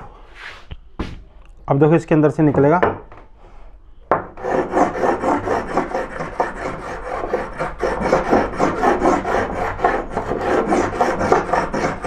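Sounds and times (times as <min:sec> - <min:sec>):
hand plane rasping on wood: 0:04.4 - 0:12.0.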